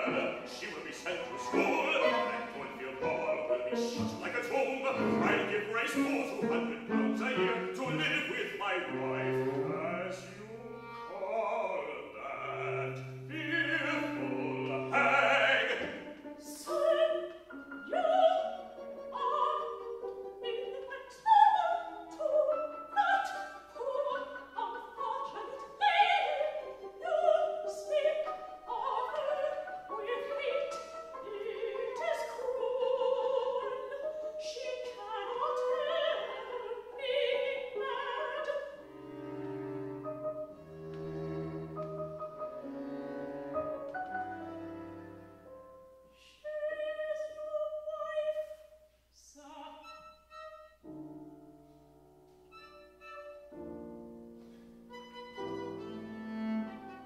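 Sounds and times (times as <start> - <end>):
low cello notes: 0.0 - 16.1, 38.8 - 45.6
opera singing: 0.0 - 39.0, 46.1 - 48.6, 49.2 - 50.0
bowed strings: 0.0 - 45.6, 52.0 - 57.0
piano: 0.0 - 48.8, 49.6 - 57.0.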